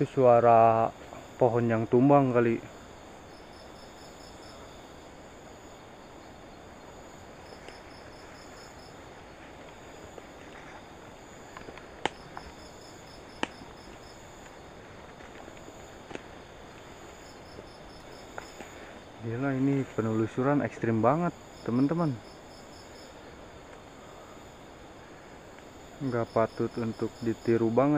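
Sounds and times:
crickets chirping: 0.0s - 27.9s
insect buzz: 0.0s - 27.9s
sharp snaps: 11.5s - 12.6s, 13.2s - 14.6s.

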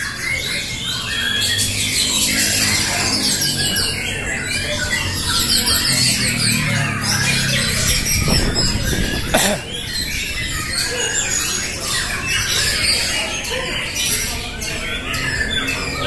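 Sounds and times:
birds singing in chorus: 0.0s - 16.0s.

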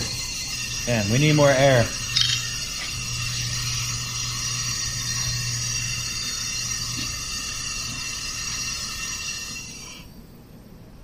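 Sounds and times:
low hum: 1.8s - 8.0s.

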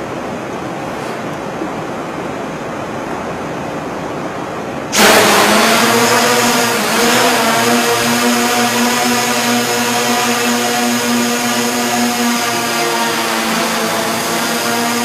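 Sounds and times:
steady hiss: 0.0s - 15.0s
drone propellers buzzing: 4.9s - 15.0s.

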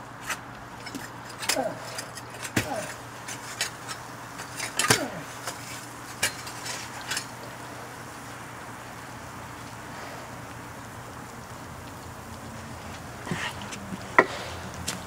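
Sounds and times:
metal clinks and knocks: 0.0s - 7.5s
steady low hum: 0.0s - 15.0s.

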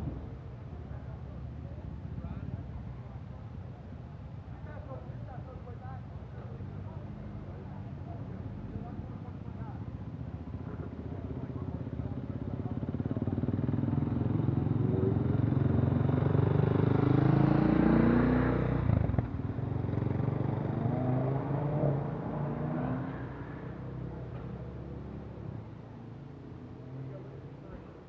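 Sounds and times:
motorcycle engine passing by: 12.6s - 25.2s.

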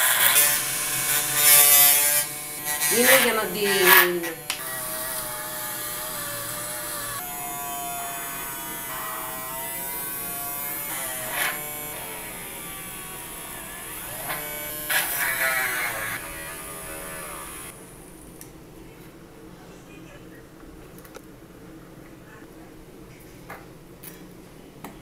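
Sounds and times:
small motor buzzing whir: 0.0s - 17.8s.

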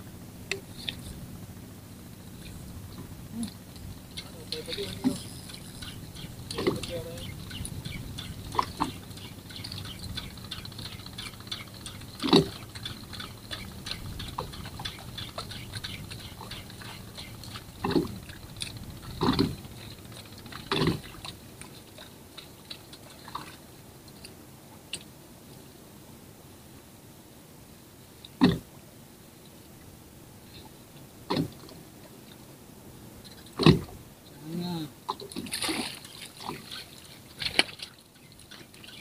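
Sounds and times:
water lapping against boat hull: 0.5s - 1.3s, 2.2s - 25.1s, 28.3s - 28.7s, 30.5s - 32.5s, 33.2s - 34.1s, 34.9s - 39.0s
small irregular ticks: 2.4s - 25.1s.

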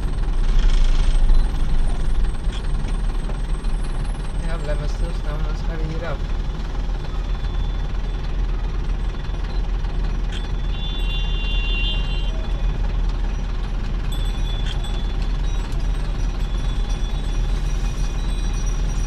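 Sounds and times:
vehicle engine and tyres rumbling: 0.0s - 19.0s.

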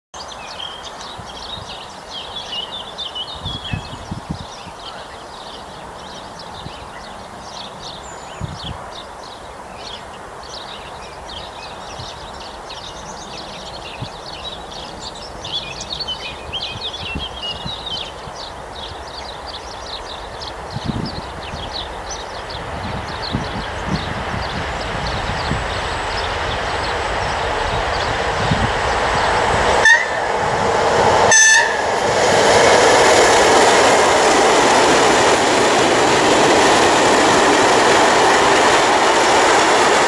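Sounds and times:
birds chirping and singing: 0.2s - 29.6s.

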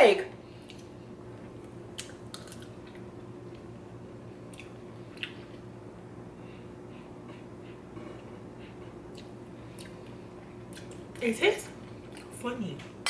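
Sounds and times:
faint steady hum: 0.0s - 13.0s
person chewing with wet mouth clicks: 1.9s - 2.7s, 4.5s - 5.4s, 9.1s - 11.0s.

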